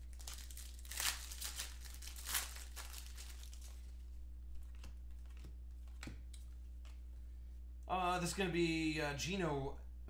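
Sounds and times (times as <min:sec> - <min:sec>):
foil wrapper crinkling and tearing: 0:00.0 - 0:04.0
low electrical hum: 0:00.0 - 0:10.0.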